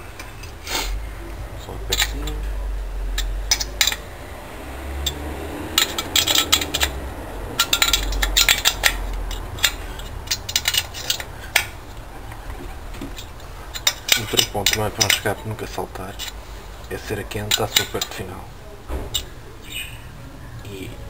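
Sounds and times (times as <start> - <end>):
metal spanner clinking on nuts: 1.9 - 2.4, 3.2 - 4.0, 5.0 - 7.0, 7.6 - 11.7, 13.1 - 15.4, 16.1 - 18.2.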